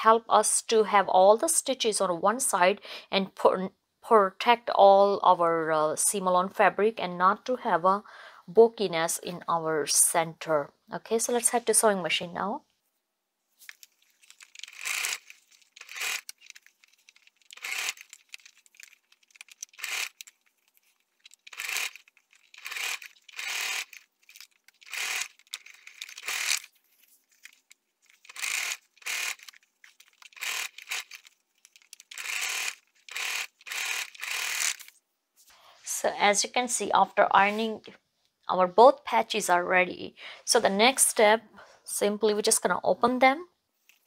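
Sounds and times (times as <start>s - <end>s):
sewing machine stitching: 14.4s - 16.6s, 17.5s - 18.4s, 19.4s - 20.3s, 21.3s - 24.1s, 24.8s - 26.7s, 28.2s - 29.5s, 30.2s - 31.3s, 32.0s - 34.9s.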